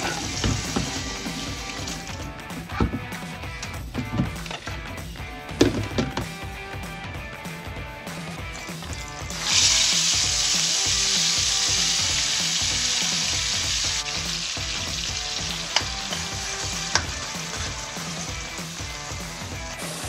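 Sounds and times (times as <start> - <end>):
spice paste sizzling in oil: 8.8 - 20.0.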